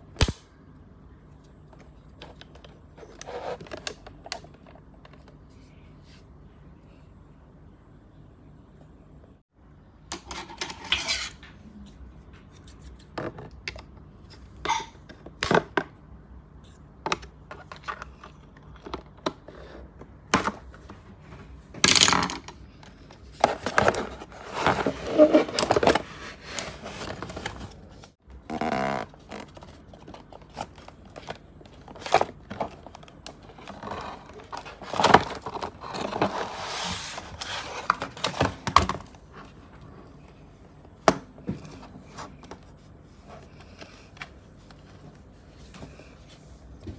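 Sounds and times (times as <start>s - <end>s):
packaging clicks and scrapes: 2.2s - 5.2s, 23.3s - 39.1s.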